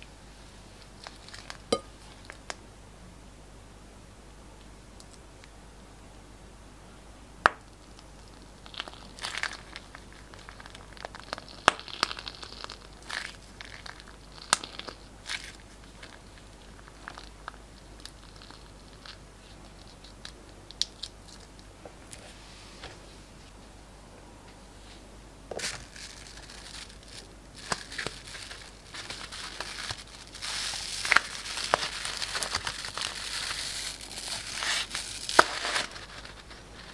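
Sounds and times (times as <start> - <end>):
slime wet crackling and popping: 7.4 - 19.2, 25.6 - 35.9.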